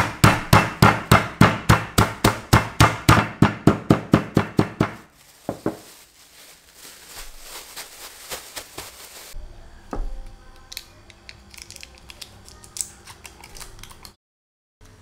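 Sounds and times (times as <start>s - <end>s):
plastic bag crinkling: 5.0s - 9.4s
foil wrapper peeled open: 5.1s - 9.4s.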